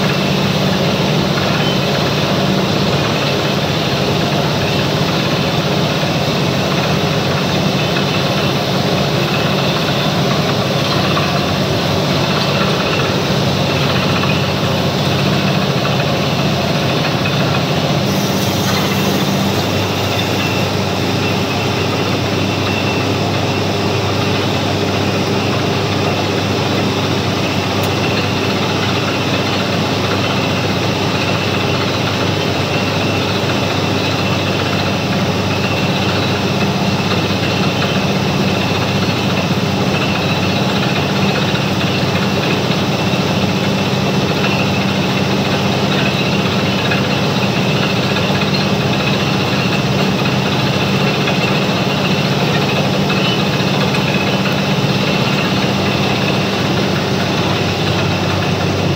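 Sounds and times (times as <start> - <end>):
drilling rig engine running: 0.0 - 58.9
rush of hiss: 18.0 - 20.9.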